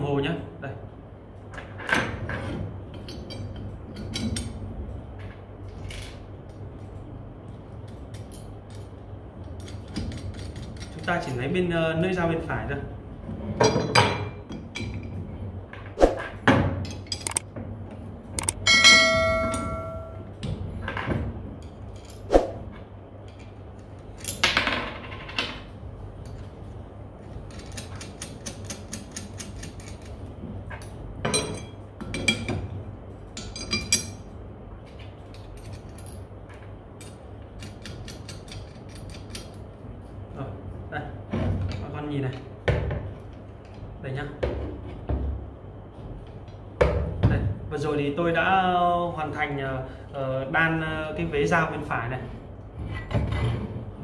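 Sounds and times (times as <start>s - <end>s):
metal blade ringing: 18.6s - 20.3s
metal parts clanking: 35.3s - 39.6s.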